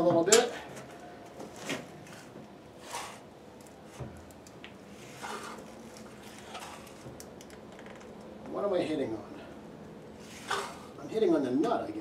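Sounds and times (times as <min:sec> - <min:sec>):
metal table scraping: 0:02.8 - 0:03.2, 0:05.0 - 0:05.7, 0:10.2 - 0:10.9.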